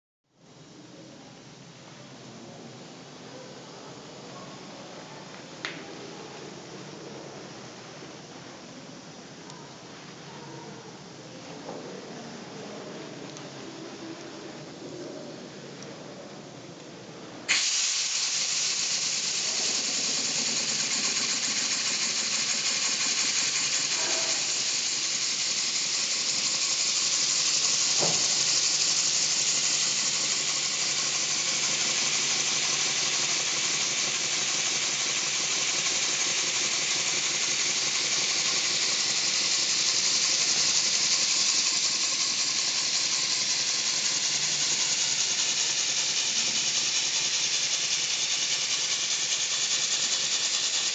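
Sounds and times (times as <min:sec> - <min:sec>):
hiss of exhaust air: 0:17.5 - 0:50.9
model steam engine running: 0:17.5 - 0:50.9.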